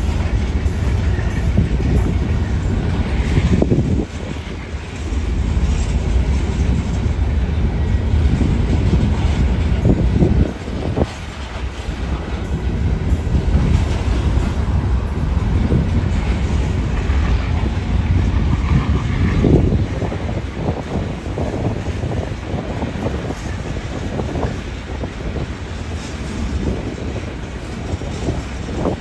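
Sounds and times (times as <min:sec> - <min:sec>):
freight train rumbling past: 0:00.0 - 0:29.0
wheels clacking over rail joints: 0:00.0 - 0:29.0.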